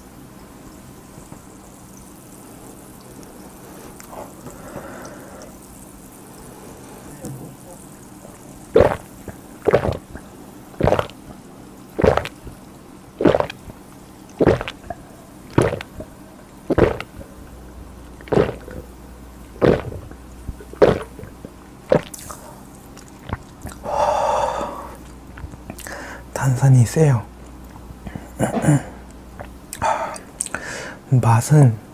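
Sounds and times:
person gulping: 7.2 - 11.3, 12.0 - 12.6, 13.2 - 17.4, 18.1 - 18.9, 19.5 - 26.0, 28.1 - 30.6.

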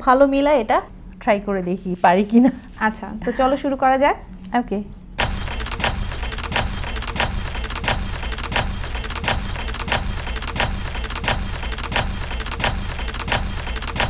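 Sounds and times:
music with steady beat: 5.2 - 14.0.

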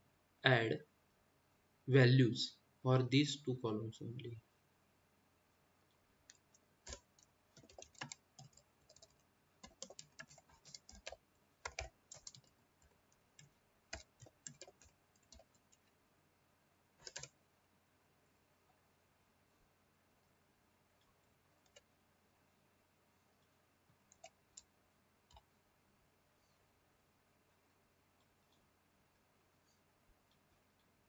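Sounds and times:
computer keyboard key clicks: 6.3 - 12.5, 17.0 - 17.3.

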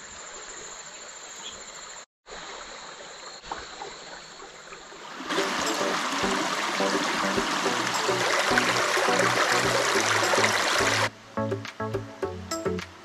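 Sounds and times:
stream rushing: 4.9 - 11.1
music: 5.3 - 13.0.

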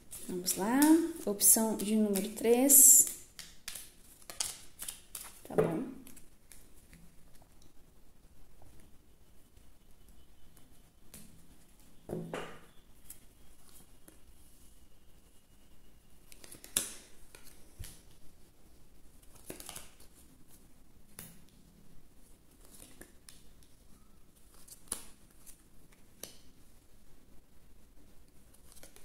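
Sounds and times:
cards sliding and rustling: 19.2 - 20.2, 28.5 - 29.0.

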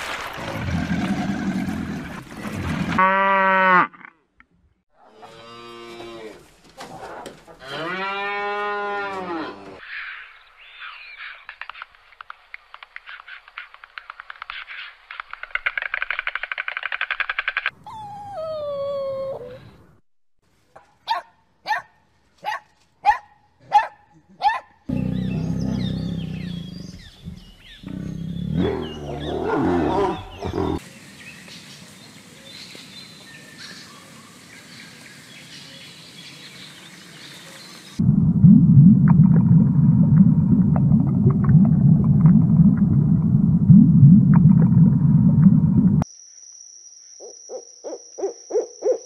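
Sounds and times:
tiger growling and roaring: 0.4 - 3.0, 24.9 - 30.8
bird calls: 24.9 - 31.7
low underwater rumble: 38.0 - 46.0.

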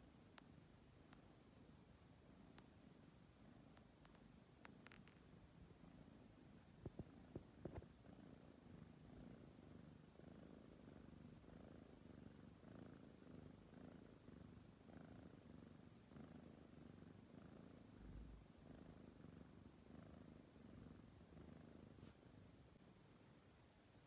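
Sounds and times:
kitten purring: 0.0 - 24.0
faint clicks: 0.2 - 1.3, 2.4 - 2.8, 3.6 - 5.4.

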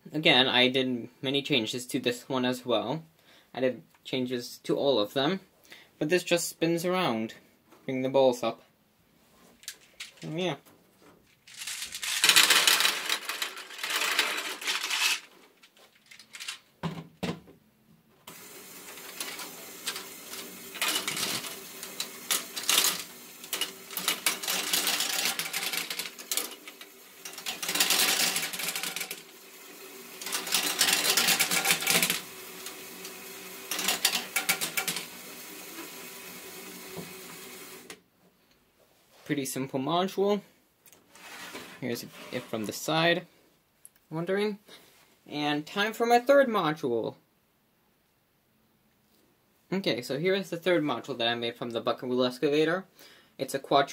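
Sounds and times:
plastic gears and balls clattering: 9.6 - 10.5, 11.3 - 17.0, 18.3 - 38.0.

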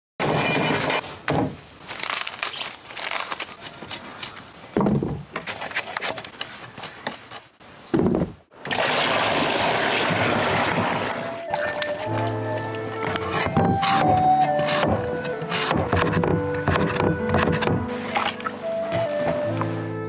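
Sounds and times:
husks crackling being peeled: 1.7 - 4.5, 11.4 - 15.9
bird chirp: 2.5 - 3.0
water pouring into tub: 8.6 - 12.0.

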